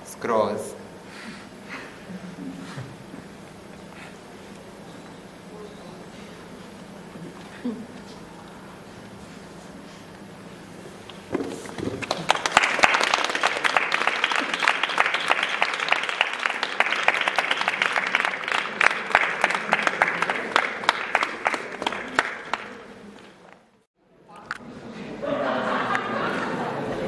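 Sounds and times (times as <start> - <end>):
audience applauding: 11.6 - 23.6.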